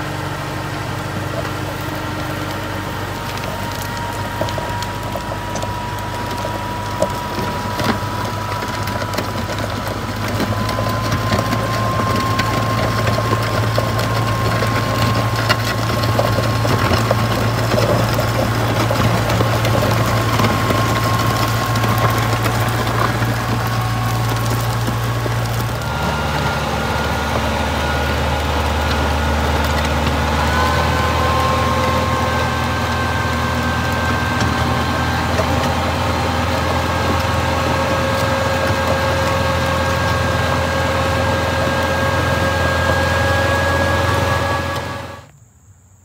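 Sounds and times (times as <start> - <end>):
tractor engine running: 0.0 - 45.3
blade scraping through gravel: 3.4 - 43.3.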